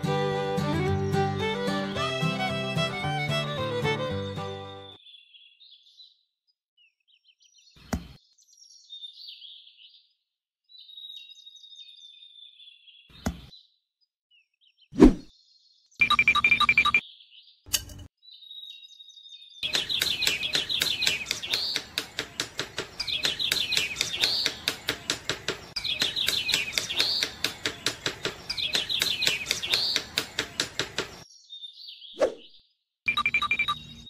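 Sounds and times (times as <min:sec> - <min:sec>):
fast even clicking: 0:19.6 - 0:31.2
bird-like chirping calls: 0:19.6 - 0:31.3.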